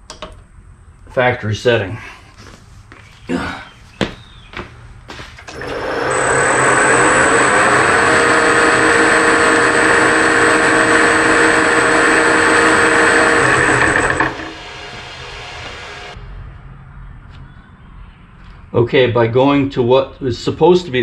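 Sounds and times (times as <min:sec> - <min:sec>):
drive belt noise: 0:05.4 - 0:16.2
lathe motor spinning: 0:05.4 - 0:16.2
steady high whine: 0:05.4 - 0:16.2.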